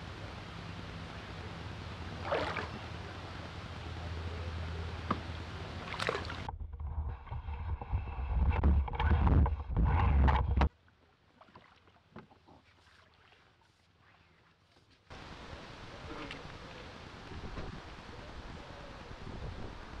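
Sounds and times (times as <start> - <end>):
wind buffeting microphone: 17.1 - 20.0.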